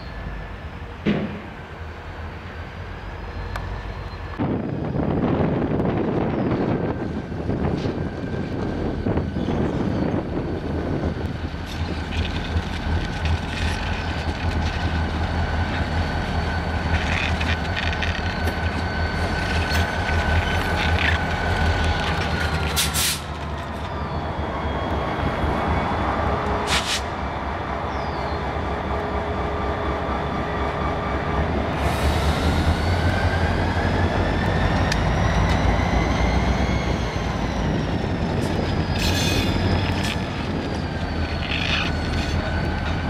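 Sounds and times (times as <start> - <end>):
diesel locomotive engines rumbling: 0.0 - 43.0
sharp sounds from train wheels: 31.8 - 43.0.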